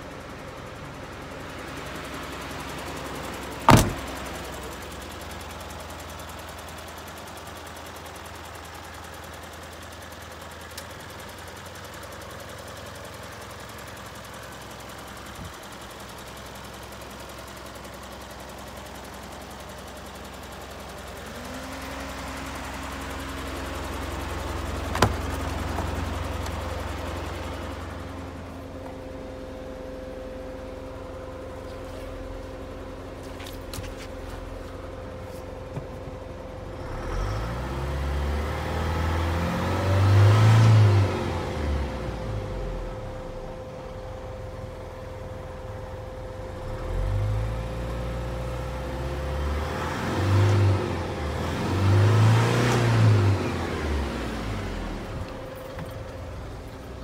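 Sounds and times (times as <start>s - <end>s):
truck engine idling: 0.0s - 37.0s, 53.3s - 57.0s
sharp loud thump: 3.7s - 4.3s.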